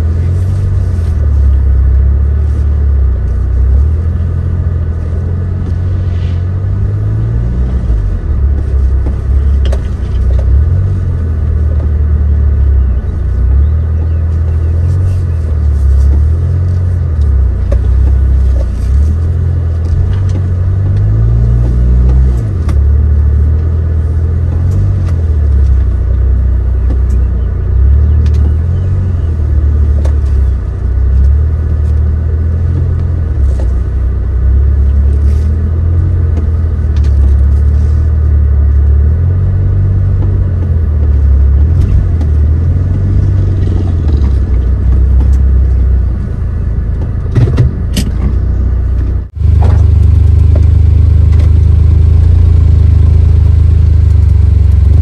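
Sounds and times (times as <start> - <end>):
car engine revving off-road: 0.0 - 55.0
sharp knocks and clicks: 7.7 - 11.0, 17.2 - 23.7, 40.1 - 51.6.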